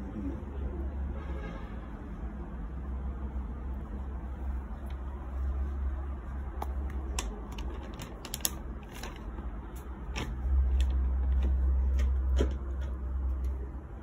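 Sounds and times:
handling clicks and rustles: 4.6s - 13.6s.

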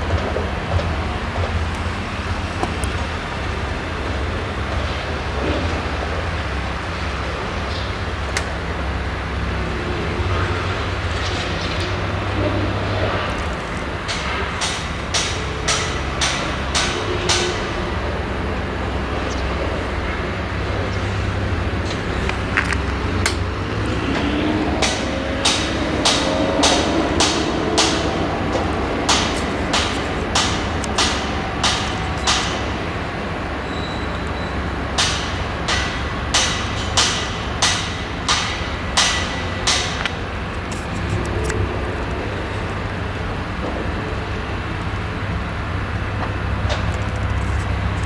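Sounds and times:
combine harvester engine drone: 0.0s - 48.0s
sharp knocks: 14.0s - 17.8s, 24.1s - 32.9s.

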